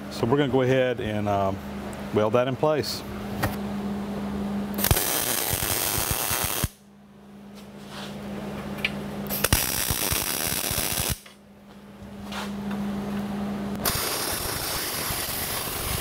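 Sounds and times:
steady low hum: 0:00.0 - 0:16.0
welding arc crackling on steel: 0:04.8 - 0:06.8, 0:09.3 - 0:11.4, 0:13.8 - 0:16.0.

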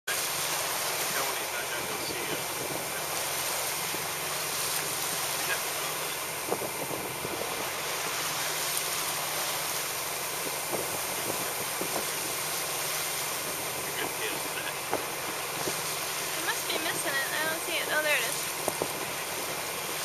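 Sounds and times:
sea waves: 0:00.0 - 0:20.0
boat engine idling: 0:00.1 - 0:20.0
wind rushing: 0:06.3 - 0:07.9.

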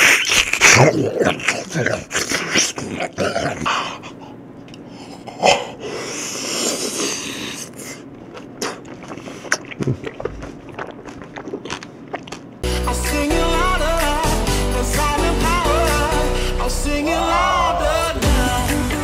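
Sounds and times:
man chewing grapes: 0:00.0 - 0:03.7, 0:06.3 - 0:12.7
wet mouth clicks and smacks: 0:08.3 - 0:12.5.

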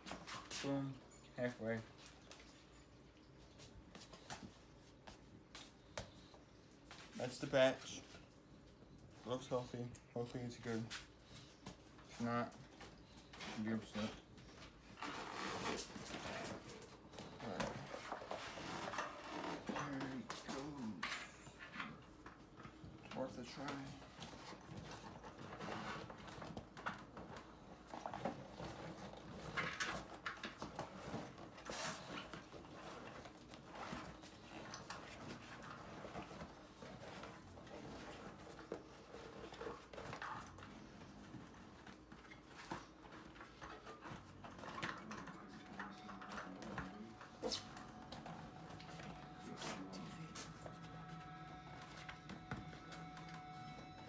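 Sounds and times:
rubber tyre rubbing and squeaking on rim: 0:14.9 - 0:20.0.

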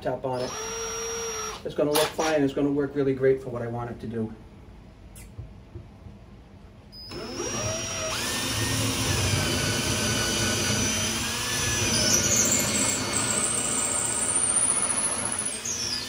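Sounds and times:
power drill boring into wall: 0:00.4 - 0:02.3, 0:07.1 - 0:16.0.

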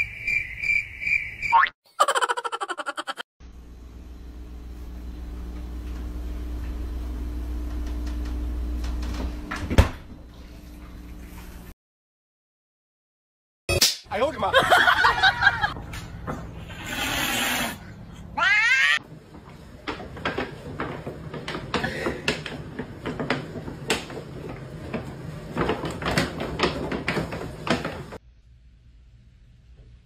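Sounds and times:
cat meowing: 0:18.4 - 0:19.0
cat yowling: 0:18.4 - 0:19.0.

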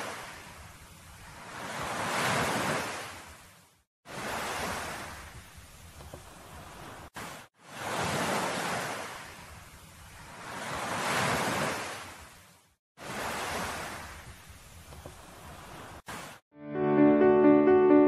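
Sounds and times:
ocean surf washing in: 0:00.0 - 0:03.3, 0:04.1 - 0:05.6, 0:06.2 - 0:12.2, 0:13.0 - 0:16.4.

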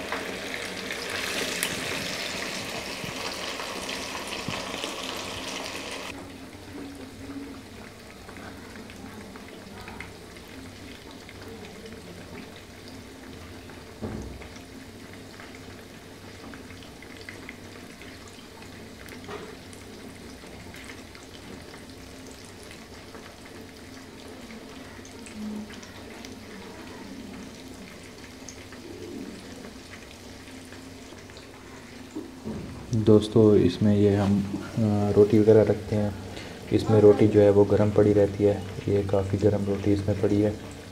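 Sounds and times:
fish deep-frying in oil: 0:00.0 - 0:40.9.

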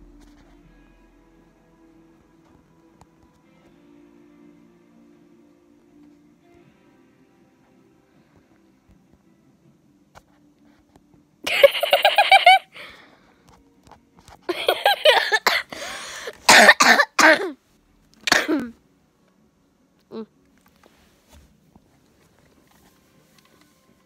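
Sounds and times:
girl laughing: 0:11.5 - 0:12.8, 0:14.5 - 0:15.8.

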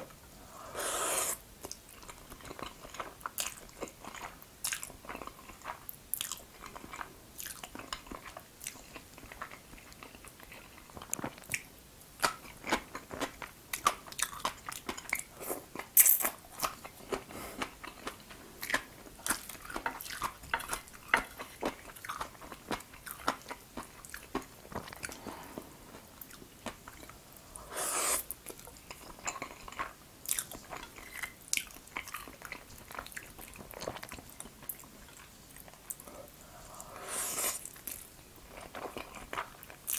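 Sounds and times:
noodle slurp: 0:00.5 - 0:01.4, 0:27.5 - 0:28.3, 0:36.6 - 0:37.7
wet chewing with mouth clicks: 0:00.8 - 0:39.9.

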